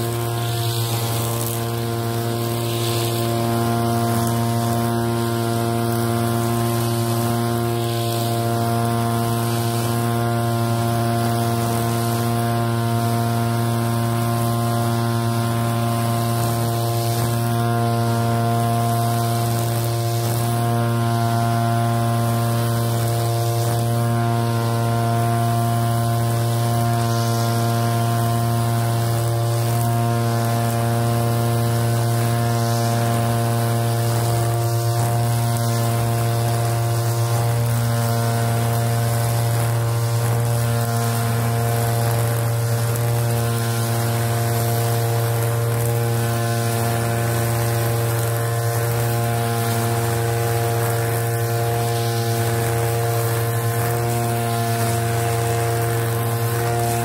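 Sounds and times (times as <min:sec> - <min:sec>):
brush cutter engine droning: 0:00.0 - 0:57.0.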